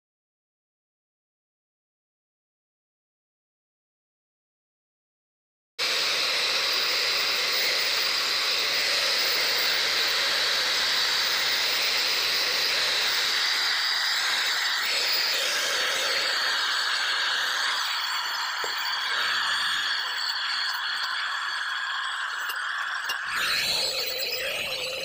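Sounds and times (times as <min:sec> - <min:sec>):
angle grinder grinding metal: 0:05.8 - 0:25.0.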